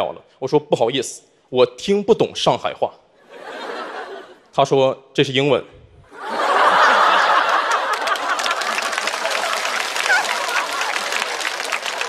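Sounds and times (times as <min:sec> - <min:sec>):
audience laughing: 0:03.2 - 0:04.5, 0:06.1 - 0:12.0
audience clapping: 0:06.3 - 0:12.0.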